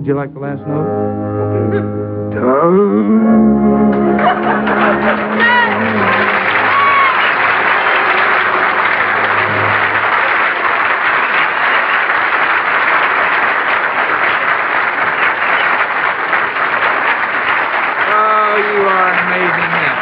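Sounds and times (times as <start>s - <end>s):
low held note: 0.0s - 6.4s
audience applauding: 3.9s - 20.0s.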